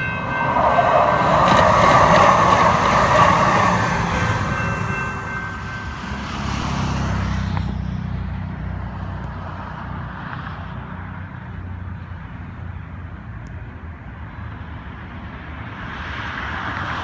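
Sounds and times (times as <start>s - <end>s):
light rail train rumble: 0.0s - 17.0s
street traffic: 0.0s - 17.0s.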